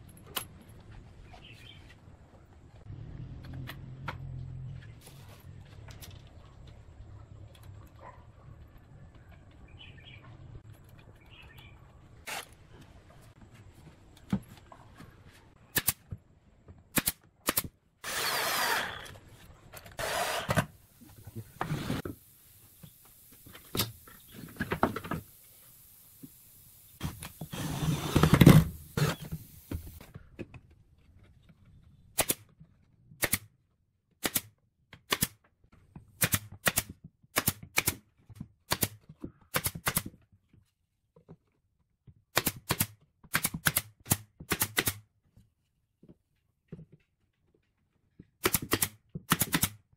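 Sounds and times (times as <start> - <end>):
nail gun firing into wood: 16.9 - 19.1, 33.2 - 33.5, 34.2 - 35.4, 36.2 - 38.0, 38.7 - 40.1, 42.3 - 45.0, 48.4 - 49.9
drill running: 18.0 - 19.2, 20.0 - 20.6.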